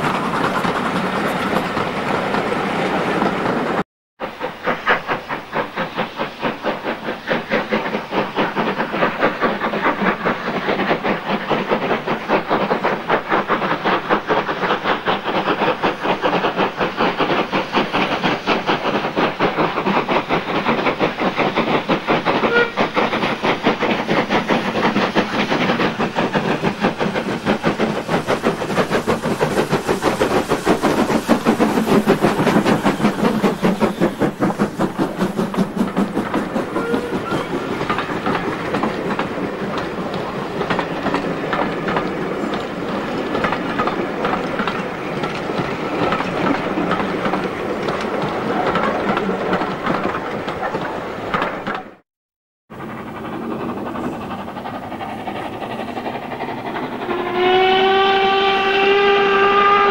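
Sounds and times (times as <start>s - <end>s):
steam locomotives chuffing: 0.0s - 52.0s, 52.7s - 59.9s.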